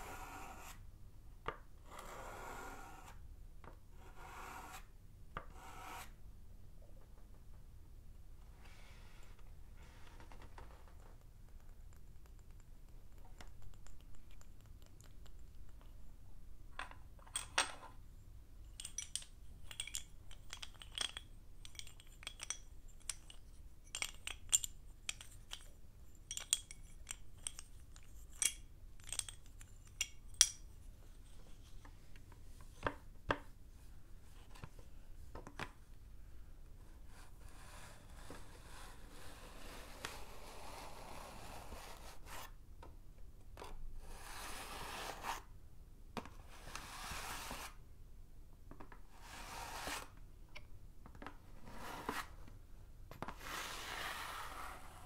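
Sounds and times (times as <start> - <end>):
chalk scraping on chalkboard: 4.0 - 4.9, 5.5 - 6.2, 46.6 - 47.8, 49.2 - 50.1, 53.4 - 55.0
chalk sticks clinking: 18.7 - 31.8.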